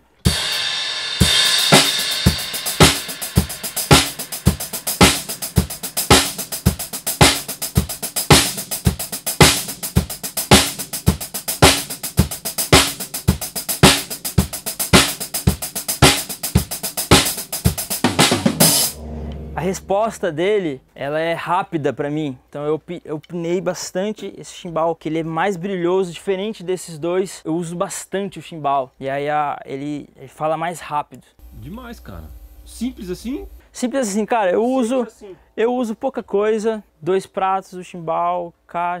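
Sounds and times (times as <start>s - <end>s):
drum kit groove: 0.0s - 20.5s
cymbal crash: 0.3s - 7.6s, 18.1s - 20.3s.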